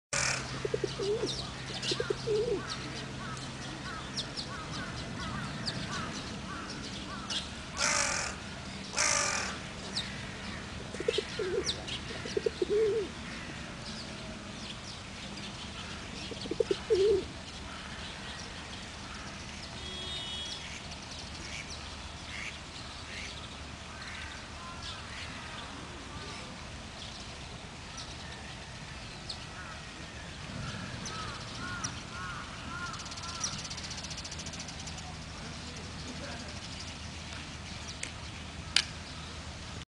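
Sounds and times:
crow cawing: 0:00.2 - 0:00.5, 0:02.0 - 0:09.6, 0:30.6 - 0:33.6
pigeons cooing: 0:00.2 - 0:02.8, 0:10.9 - 0:13.3, 0:16.2 - 0:17.4
small birds chirping: 0:00.2 - 0:39.6.

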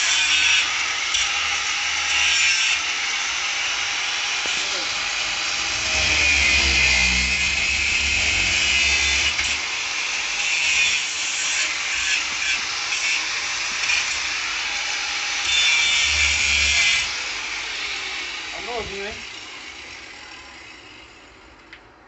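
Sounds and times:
angle grinder cutting metal: 0:00.0 - 0:21.4.

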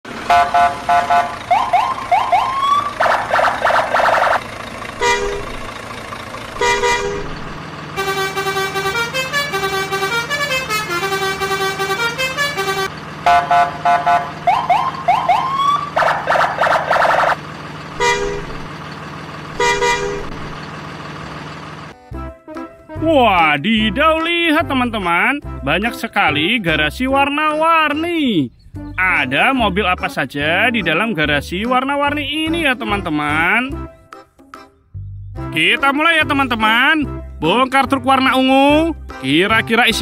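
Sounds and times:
vehicle horn honks: 0:00.3 - 0:01.4, 0:05.0 - 0:05.6, 0:06.6 - 0:07.4, 0:08.0 - 0:14.4, 0:18.0 - 0:18.6, 0:19.6 - 0:20.4
loud blaring horn blasts: 0:00.3 - 0:01.7, 0:05.0 - 0:05.6, 0:06.6 - 0:15.0, 0:18.0 - 0:18.7, 0:19.6 - 0:20.5
multi-tone horn tune: 0:00.3 - 0:01.7, 0:05.0 - 0:05.6, 0:06.6 - 0:07.4, 0:08.0 - 0:14.9, 0:18.0 - 0:18.6, 0:19.6 - 0:20.5
rising siren whoops: 0:00.7 - 0:04.4, 0:13.3 - 0:17.4.

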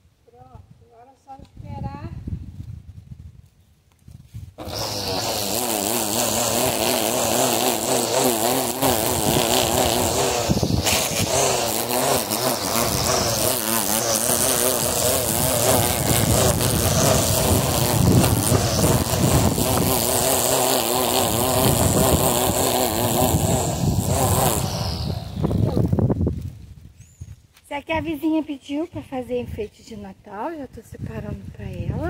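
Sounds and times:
grass trimmer buzzing: 0:04.6 - 0:26.5.

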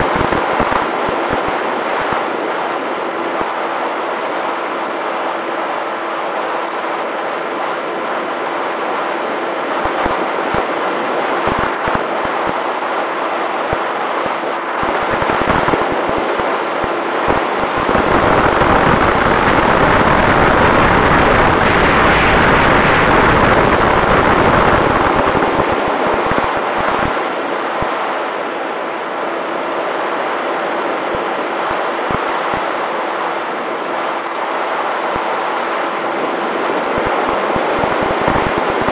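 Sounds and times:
wind buffeting microphone: 0:14.8 - 0:27.2, 0:36.1 - 0:38.9.

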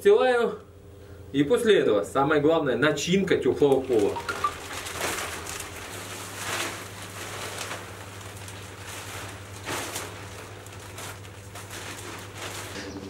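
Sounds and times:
plastic sheeting rustling: 0:03.1 - 0:13.0
plastic sheet swishes: 0:03.8 - 0:13.0.

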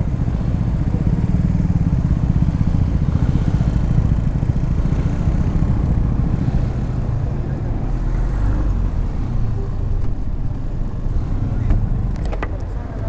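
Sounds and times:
motorcycle engine idling low: 0:00.0 - 0:07.6.

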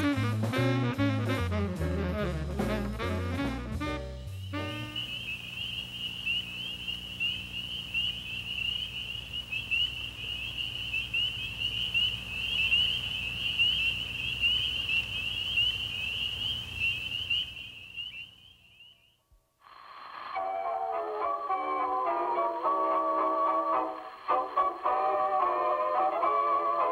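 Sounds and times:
faint low hum: 0:02.1 - 0:26.9
frogs chorus peeping: 0:04.3 - 0:19.2.

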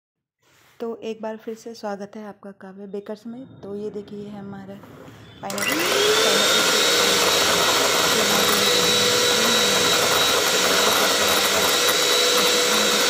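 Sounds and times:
electric hand mixer whipping cream: 0:05.5 - 0:13.0.

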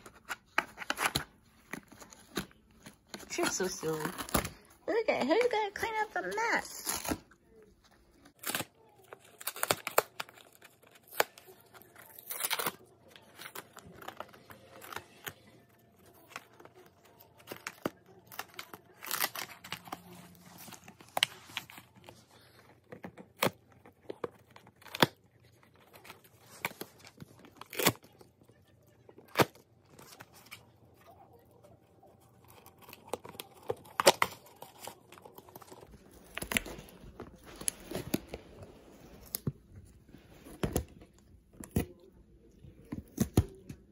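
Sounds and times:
dog ripping cardboard box: 0:08.4 - 0:28.3.

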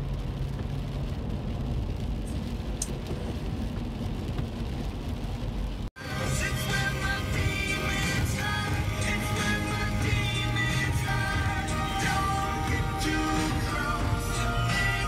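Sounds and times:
low road rumble: 0:00.0 - 0:15.0
rain on windshield: 0:00.0 - 0:15.0
tyres on wet pavement: 0:00.0 - 0:15.0
music: 0:06.0 - 0:15.0.

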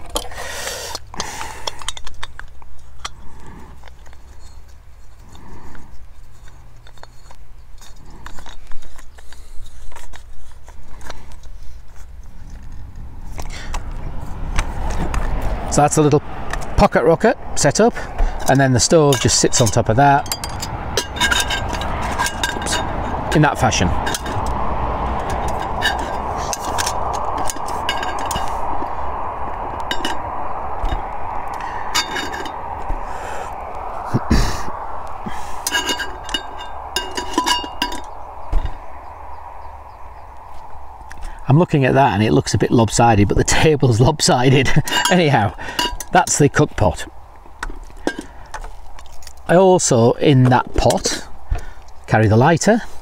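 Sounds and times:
steady rushing hiss: 0:08.8 - 0:50.0
low rumble: 0:20.2 - 0:43.2.

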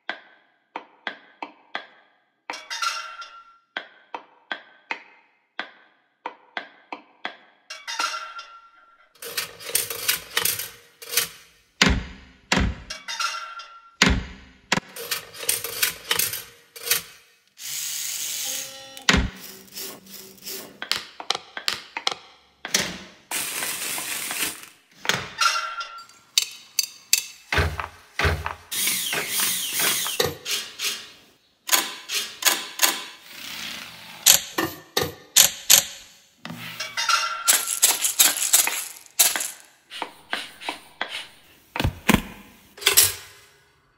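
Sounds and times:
rhythmic music on household objects: 0:14.7 - 0:22.6, 0:23.2 - 0:31.4, 0:36.6 - 0:43.7.

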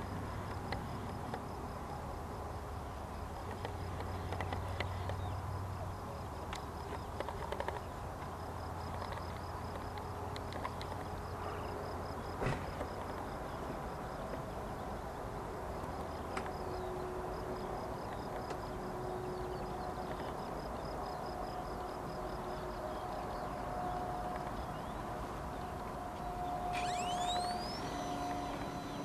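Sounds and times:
faint continuous hum: 0:00.0 - 0:29.0
windy hiss: 0:11.1 - 0:29.0.

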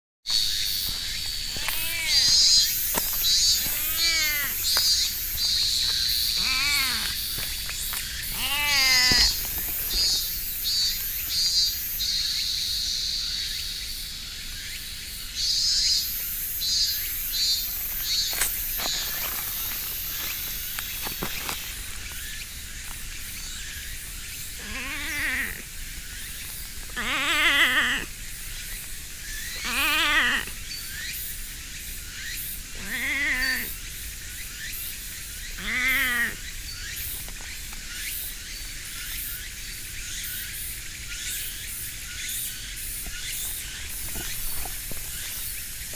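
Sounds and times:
insects buzzing in pulses: 0:00.3 - 0:45.9
cat meowing: 0:01.5 - 0:02.7, 0:03.5 - 0:04.7, 0:06.4 - 0:07.2, 0:08.3 - 0:09.4, 0:24.6 - 0:25.6, 0:27.0 - 0:28.1, 0:29.6 - 0:30.5, 0:32.8 - 0:33.7, 0:35.6 - 0:36.4.

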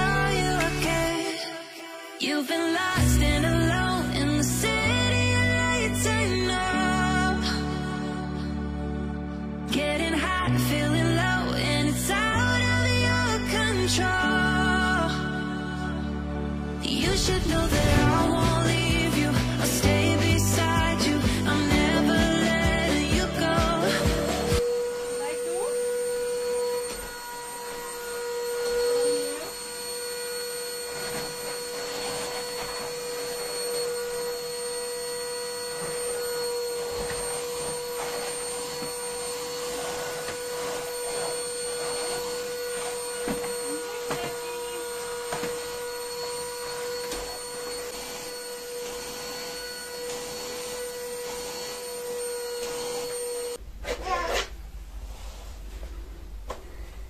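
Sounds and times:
vacuum cleaner running: 0:00.0 - 0:08.6, 0:16.9 - 0:53.6.

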